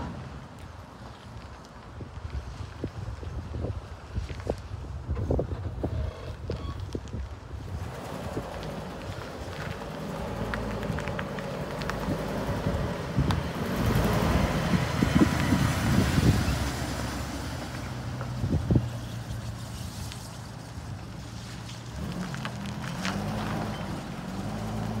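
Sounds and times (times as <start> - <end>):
wind buffeting microphone: 1.5 - 19.5
truck engine driving past: 7.8 - 19.4.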